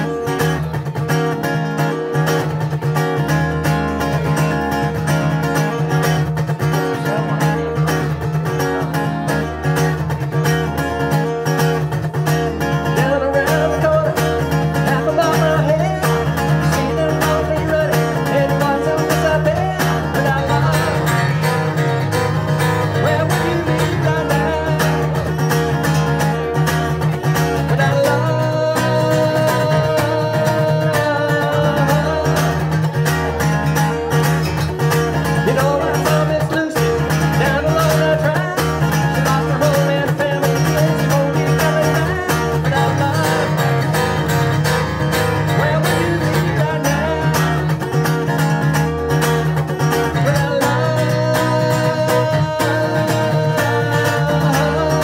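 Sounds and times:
acoustic guitar strumming: 0:00.0 - 0:55.0
man singing: 0:00.0 - 0:55.0.

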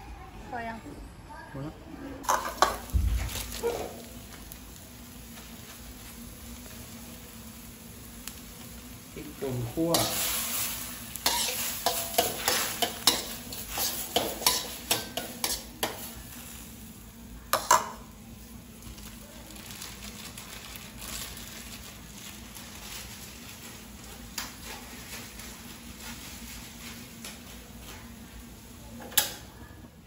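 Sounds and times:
meat sizzling faintly: 0:02.3 - 0:29.6
metal spoon scraping a wok: 0:09.9 - 0:16.2.

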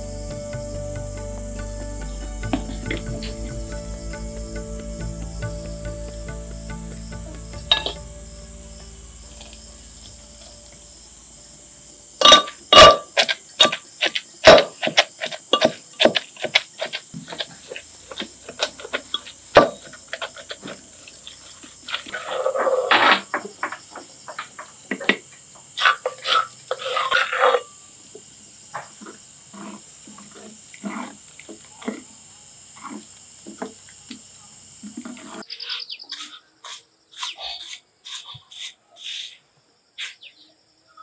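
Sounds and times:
crushing and grinding: 0:12.3 - 0:23.8
pestle knocking in mortar: 0:13.2 - 0:17.5.

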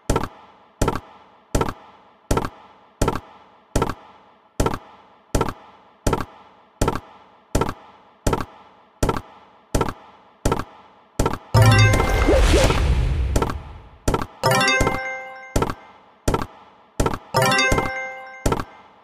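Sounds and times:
slot game reel thunks: 0:11.6 - 0:15.8.

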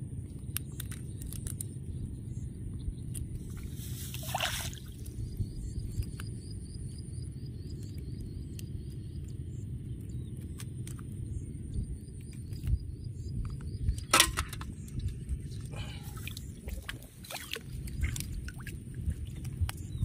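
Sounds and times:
steady low rumble: 0:00.0 - 0:20.0
small clicks: 0:00.4 - 0:01.8
rustling of net and wet grass: 0:03.4 - 0:05.2.

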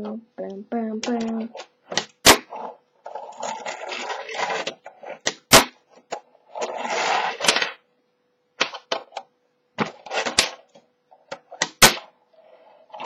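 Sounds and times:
fingerboard wheels rattling: 0:01.1 - 0:07.8, 0:09.8 - 0:12.1
fingerboard deck clacking: 0:11.3 - 0:12.1.

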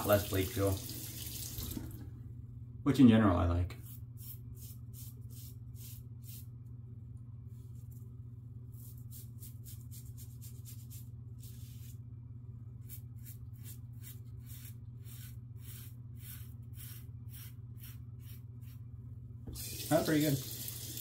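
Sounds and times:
steady low hum: 0:01.6 - 0:19.9
razor scraping stubble: 0:12.8 - 0:18.8.

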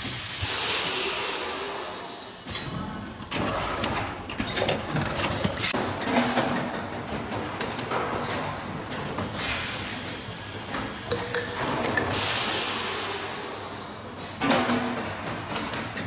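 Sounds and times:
compressed air hisses: 0:00.0 - 0:02.5, 0:12.1 - 0:13.8.

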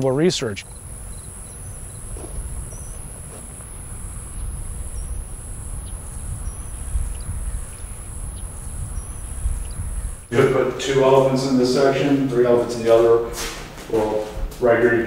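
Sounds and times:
insects droning: 0:00.0 - 0:15.0.

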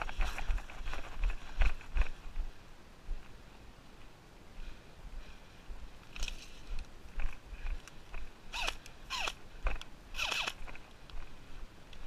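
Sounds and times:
footsteps through dry grass: 0:00.0 - 0:08.6.

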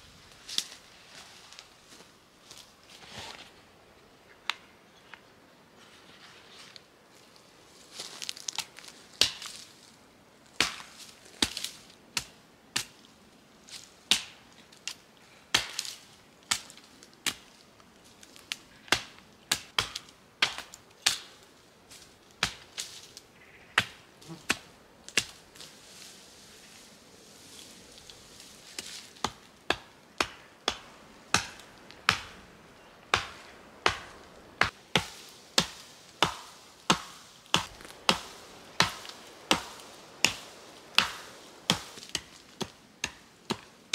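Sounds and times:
branches rustling: 0:00.0 - 0:43.9
branches snapping: 0:08.0 - 0:09.7, 0:10.6 - 0:13.1, 0:15.6 - 0:17.6, 0:28.0 - 0:43.7
hatchet chopping wood: 0:29.2 - 0:32.4, 0:33.1 - 0:43.7.

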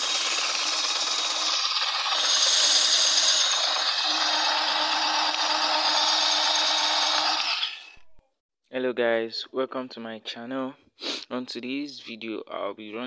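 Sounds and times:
cordless drill running: 0:00.0 - 0:08.1.

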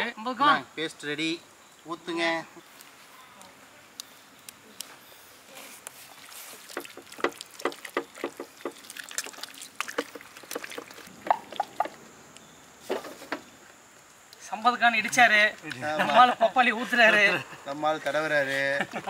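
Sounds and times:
wet squelching paste by hand: 0:05.8 - 0:12.0.

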